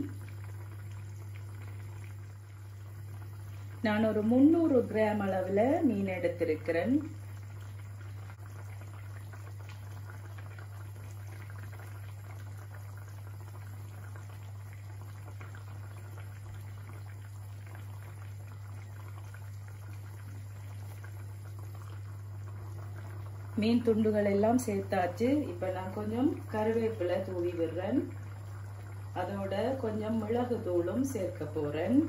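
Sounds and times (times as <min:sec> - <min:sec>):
curry bubbling in a pan: 0:00.0 - 0:32.0.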